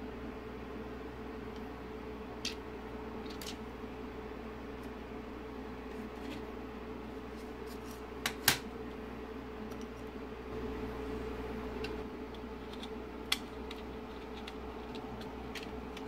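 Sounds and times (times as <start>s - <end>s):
steady hum: 0.0s - 16.0s
plastic parts clicking: 12.3s - 16.0s.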